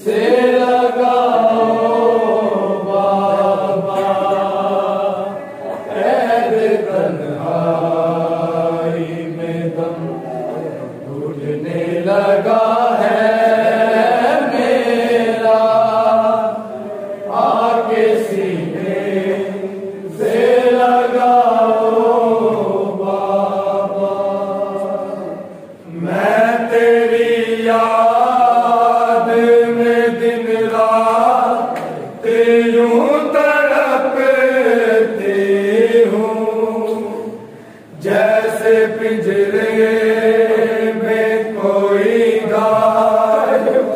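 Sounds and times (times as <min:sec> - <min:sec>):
group chanting: 0:00.0 - 0:43.9.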